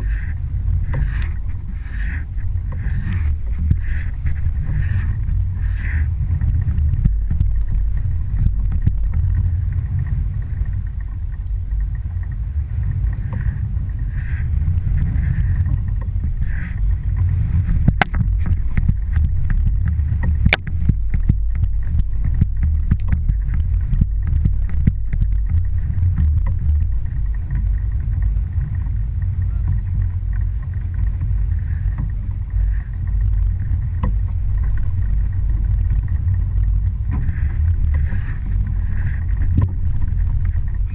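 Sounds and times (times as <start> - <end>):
boat motor and water rumble: 0.0 - 40.9
sharp knocks and rattles: 0.0 - 40.9.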